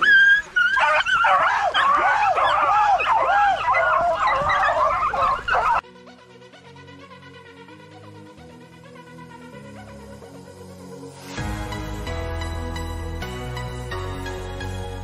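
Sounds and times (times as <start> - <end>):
hounds baying and yelping: 0.0 - 5.8.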